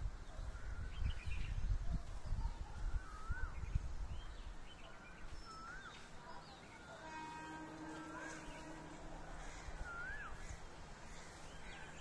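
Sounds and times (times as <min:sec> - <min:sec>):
birds chirping: 0:00.2 - 0:12.0
whistled bird calls: 0:03.0 - 0:08.9, 0:09.7 - 0:10.5.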